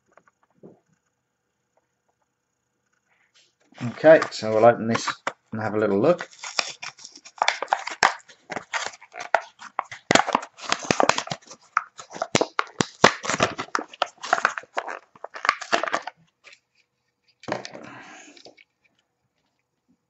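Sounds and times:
plastic crackling: 3.6 - 16.7
card tearing: 3.8 - 5.4, 6.0 - 16.6.

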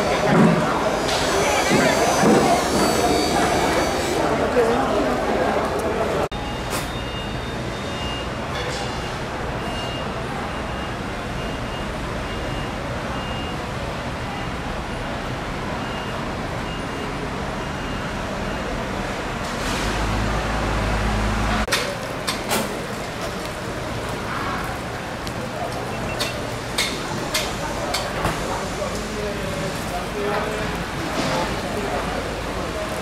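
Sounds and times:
busy market noise: 0.0 - 33.0
faint high beeps: 6.4 - 8.4.

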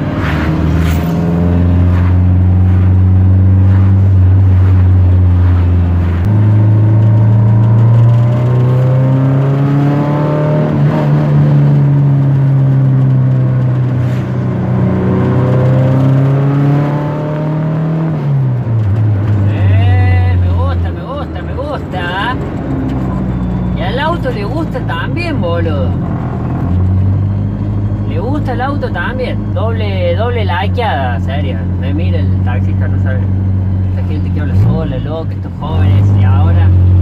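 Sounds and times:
car engine through modified exhaust: 0.0 - 37.0.

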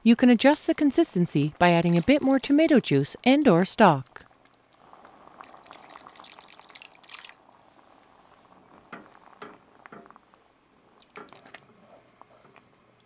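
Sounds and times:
liquid pouring into soup: 1.8 - 2.5, 4.3 - 9.3, 11.0 - 11.6
wooden spoon stirring soup: 4.3 - 7.9.

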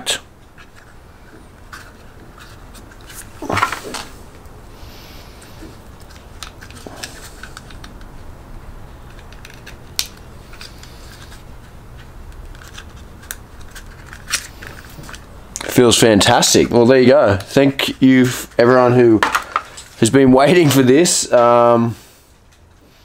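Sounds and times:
plastic parts clicking: 6.0 - 8.1, 9.0 - 11.4, 12.3 - 15.2.

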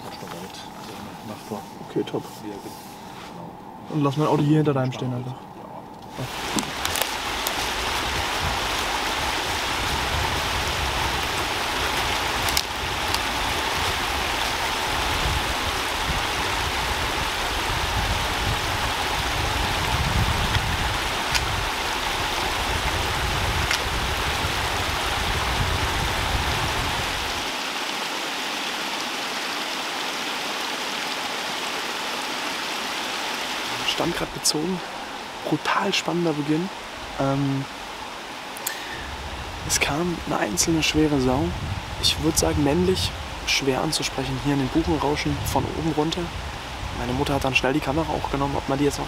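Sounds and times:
wind in the forest: 0.0 - 49.0
wind buffeting the microphone: 3.3 - 27.6, 38.8 - 49.0.

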